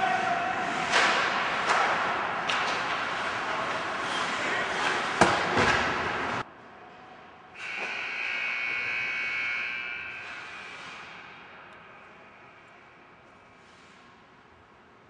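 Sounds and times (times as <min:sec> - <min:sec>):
ice rink noise: 0:00.0 - 0:15.0.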